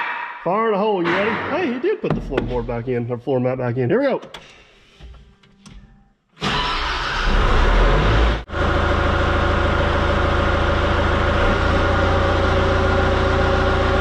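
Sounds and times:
diesel engine running: 7.5 - 14.0.

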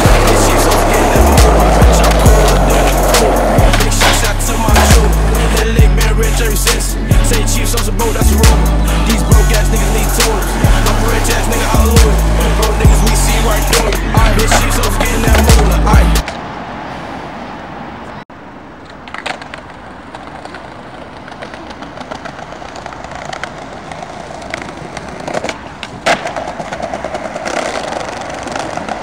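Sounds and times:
skateboard rolling over tiles: 0.0 - 6.9, 9.1 - 16.3, 19.0 - 29.0
rap backing track: 0.0 - 16.2
street sound: 0.0 - 29.0.

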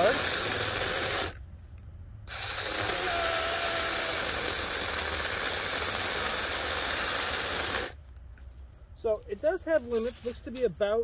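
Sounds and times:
electric chainsaw cutting branch: 0.0 - 1.4, 2.3 - 8.0.

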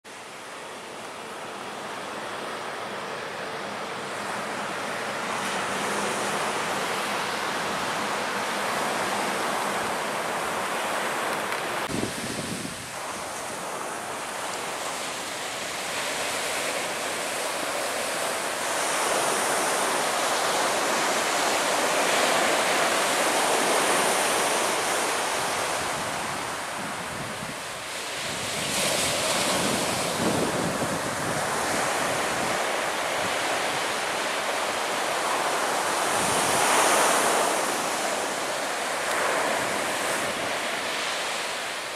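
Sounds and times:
surf breaking on beach: 2.1 - 41.9
wind buffeting microphone: 11.9 - 13.5, 25.4 - 33.9.

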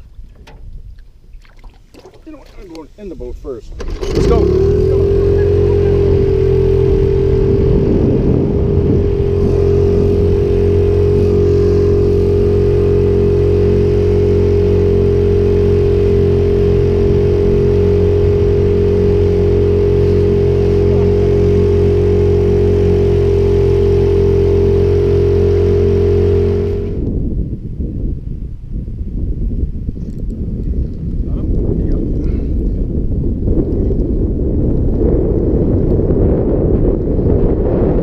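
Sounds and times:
outboard motor running: 0.0 - 27.3.

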